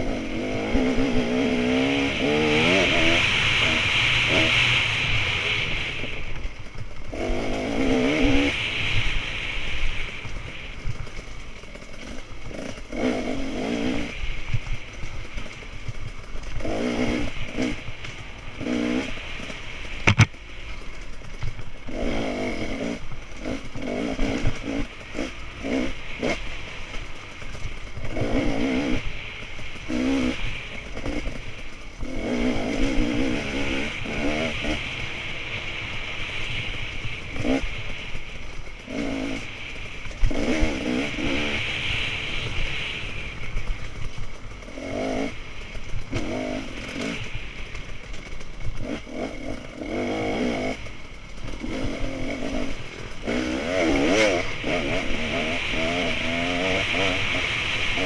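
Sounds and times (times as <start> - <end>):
dirt bike engine revving: 0.0 - 58.0
wind and road noise: 0.0 - 58.0
sharp knock: 20.1 - 20.3.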